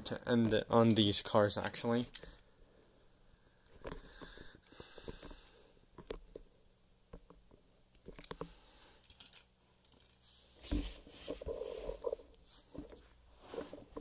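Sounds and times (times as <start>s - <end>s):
rustling: 8.3s - 14.0s.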